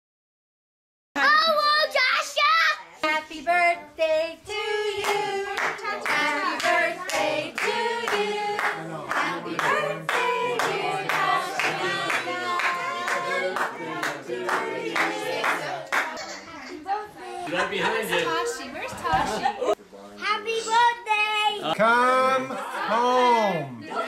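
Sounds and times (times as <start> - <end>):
people singing: 3.0 - 16.2.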